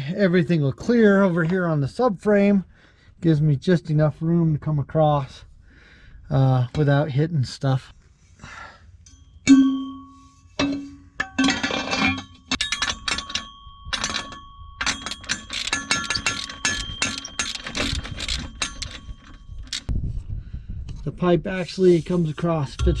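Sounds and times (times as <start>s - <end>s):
metal pipe clanking: 9.0s - 19.9s, 22.4s - 23.0s
socket ratchet clicking: 14.8s - 19.0s.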